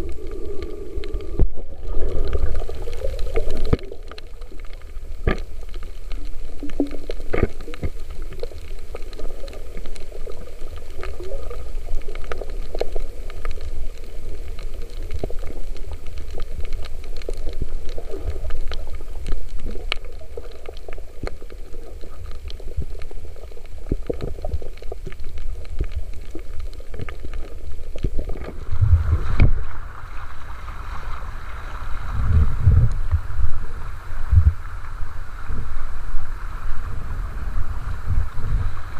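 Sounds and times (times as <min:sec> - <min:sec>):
choppy sea: 0:00.0 - 0:38.9
underwater clicks and crackles: 0:00.0 - 0:38.9
underwater rumble of moving water: 0:00.0 - 0:38.9
wind buffeting microphone: 0:32.1 - 0:33.3.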